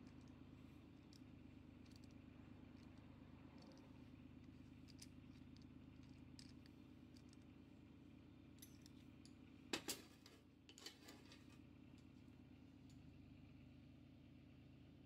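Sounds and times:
low steady hum: 0:00.0 - 0:13.1
metal parts clicking on table: 0:01.8 - 0:02.2, 0:02.8 - 0:07.4.

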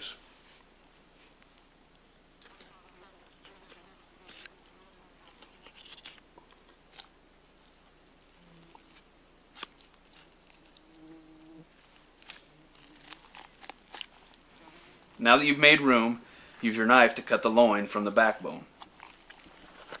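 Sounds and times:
meat being peeled by hand: 0:01.2 - 0:14.6.

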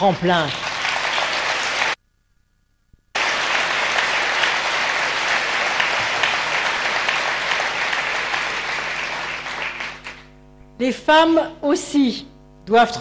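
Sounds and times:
audience applauding: 0:00.0 - 0:02.0, 0:03.2 - 0:10.4.

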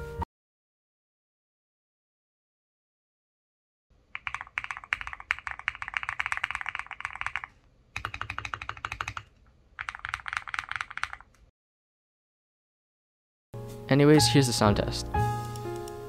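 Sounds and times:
mechanical keyboard typing: 0:04.2 - 0:11.4.

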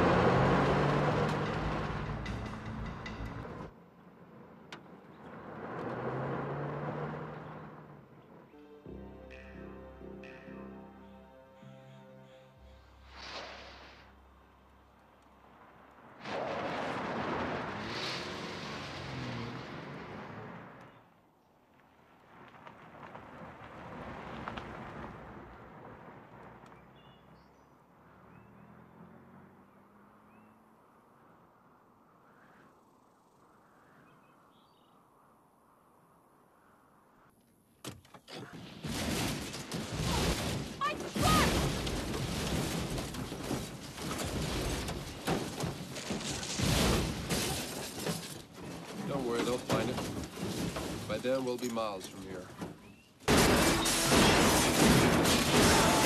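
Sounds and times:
truck passing on gravel road: 0:00.0 - 0:09.5, 0:13.0 - 0:31.8
bird chirps: 0:33.8 - 0:35.0
truck crashing on rocks: 0:38.4 - 0:56.0.

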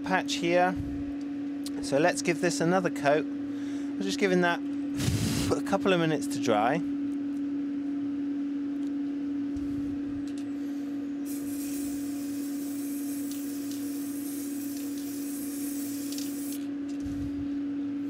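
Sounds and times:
low hum: 0:00.6 - 0:18.0
aerosol spray hiss: 0:11.3 - 0:16.6.

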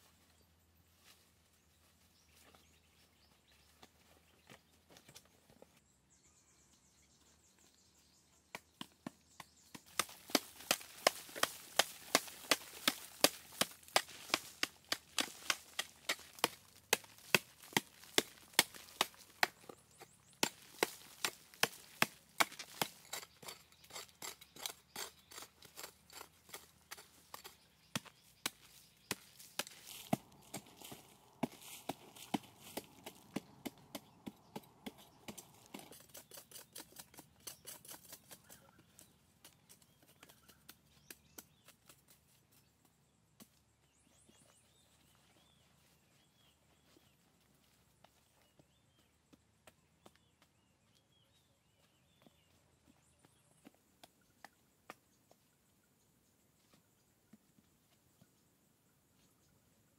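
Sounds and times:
wood being chopped: 0:08.5 - 0:23.3.

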